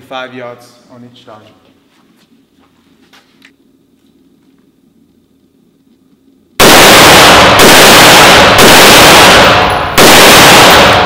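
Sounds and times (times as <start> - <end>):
rifle shots echoing indoors: 6.6 - 11.0.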